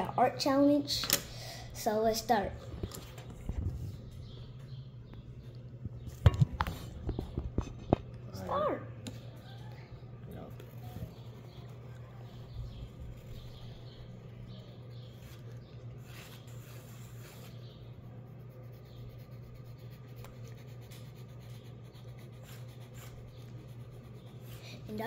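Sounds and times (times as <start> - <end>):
steady low hum: 0.0 - 25.0
pencil scratching on paper: 10.6 - 25.0.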